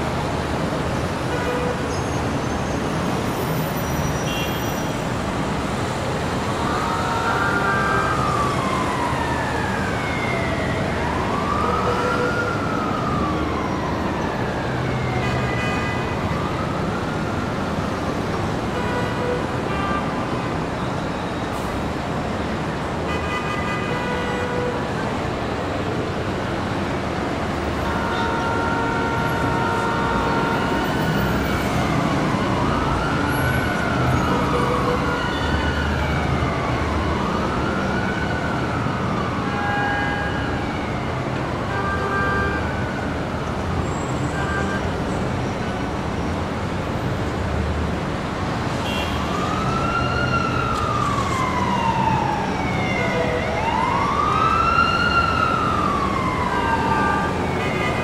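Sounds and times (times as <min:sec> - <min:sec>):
emergency siren wailing: 0:00.0 - 0:47.3, 0:47.9 - 0:58.0
city street traffic: 0:00.0 - 0:58.0.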